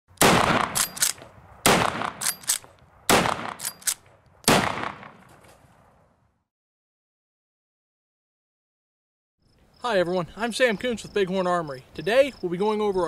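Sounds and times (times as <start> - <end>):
loud gunshots: 0.2 - 0.9, 1.6 - 2.3, 3.0 - 3.6, 4.5 - 5.2
sharp metallic clinks: 2.2 - 2.7, 3.6 - 4.0.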